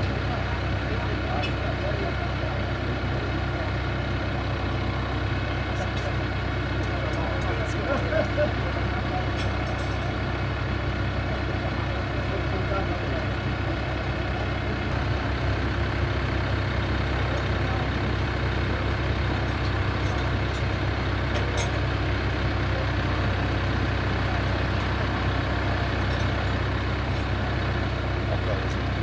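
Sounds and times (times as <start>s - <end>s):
wheel loader diesel engine idling: 0.0s - 29.0s.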